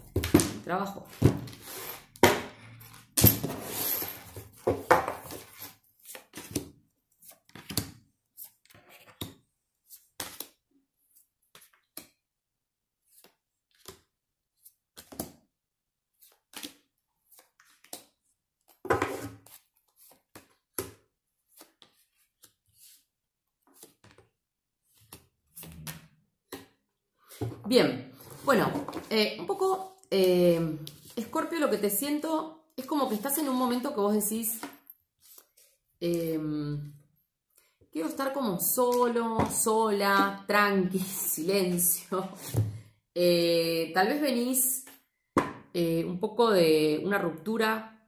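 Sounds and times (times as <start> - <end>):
cards being shuffled: 18.9 - 26.7.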